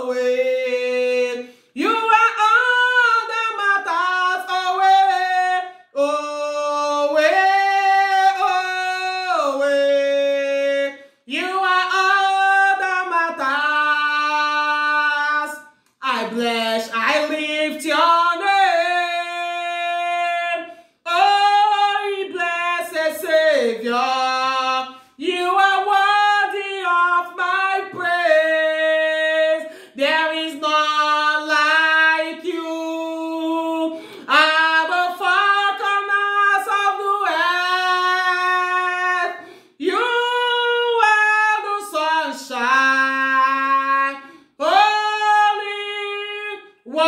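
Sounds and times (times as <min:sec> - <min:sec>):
woman singing unaccompanied: 0:00.0 - 0:47.0
breaths between phrases: 0:29.6 - 0:30.0.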